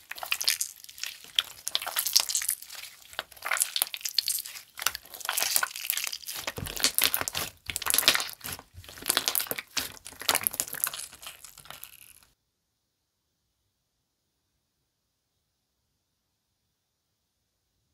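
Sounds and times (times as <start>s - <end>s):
slime squishing and crackling: 0.0s - 12.4s.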